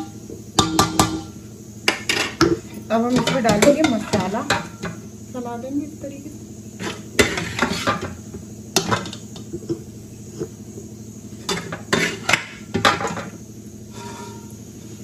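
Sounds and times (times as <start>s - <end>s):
metal spoon scraping a pot: 6.8s - 8.1s, 11.5s - 12.4s, 13.9s - 14.6s.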